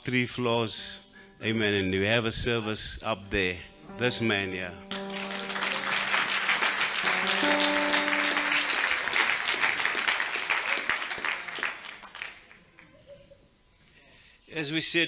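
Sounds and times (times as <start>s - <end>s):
sustained instrument notes: 3.8s - 9.8s
congregation clapping: 4.9s - 12.9s.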